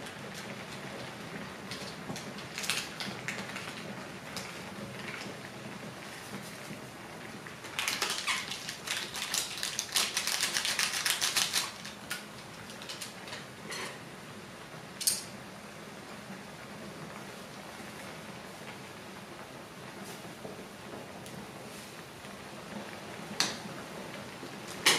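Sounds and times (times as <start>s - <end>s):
broth simmering and bubbling: 0.0s - 9.5s
plastic packet crinkling: 1.7s - 3.8s, 7.7s - 13.2s.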